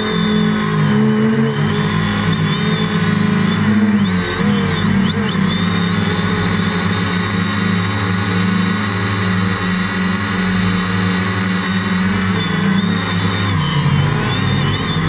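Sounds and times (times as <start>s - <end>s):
quadcopter motors and propellers humming: 0.0s - 15.0s.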